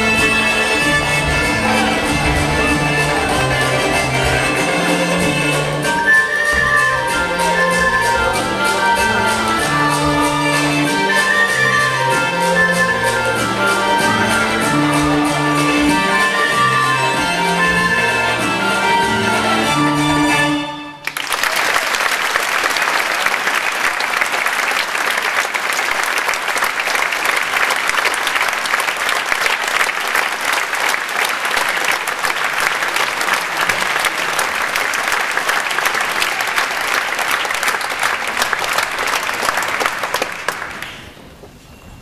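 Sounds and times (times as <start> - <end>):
audience applauding: 21.0 - 41.2.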